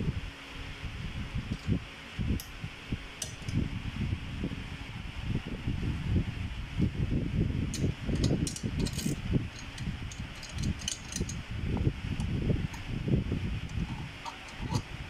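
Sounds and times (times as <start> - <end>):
metallic clicks and clinks: 7.7 - 11.4, 13.7 - 14.9.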